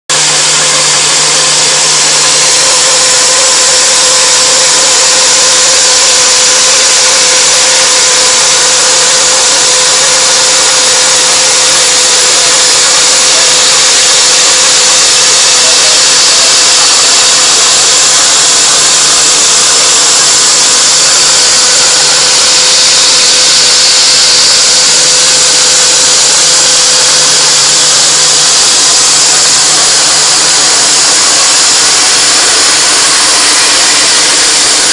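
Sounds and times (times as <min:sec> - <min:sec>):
milling cutter hissing on metal: 0:00.1 - 0:34.9
spindle hum: 0:00.1 - 0:34.9.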